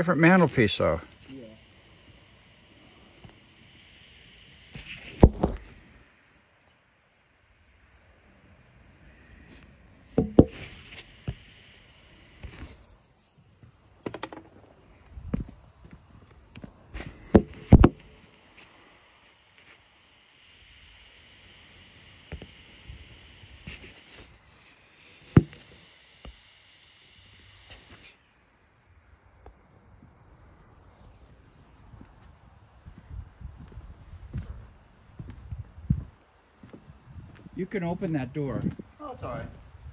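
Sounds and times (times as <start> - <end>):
high insect buzzing: 0.0 - 29.5, 30.6 - 37.5
sharp knocks: 10.2 - 10.7
footsteps on wooden deck: 13.6 - 17.9, 31.7 - 37.5, 38.6 - 38.9.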